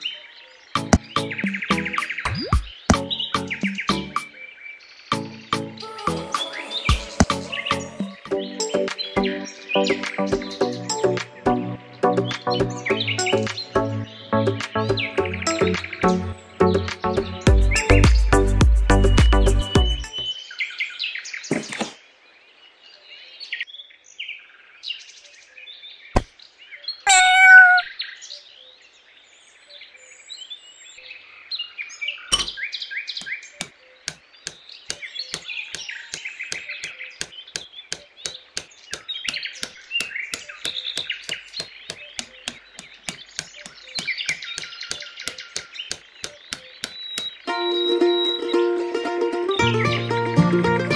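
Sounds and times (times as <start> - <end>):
songbirds chirping: 0.0 - 50.9
drawn-out bird call: 27.1 - 27.9
sharp knocks: 34.1 - 47.4
quick even ticking: 34.9 - 47.5.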